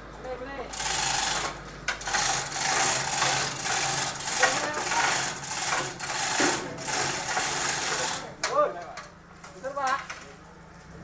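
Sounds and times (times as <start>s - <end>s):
rasping hissing machine noise: 0.7s - 8.4s.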